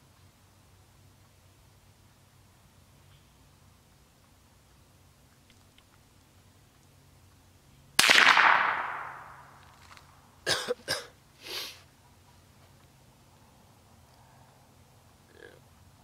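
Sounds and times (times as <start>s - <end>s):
rifle shot with echo: 8.0s - 9.5s
soft breathy sound: 14.1s - 15.6s.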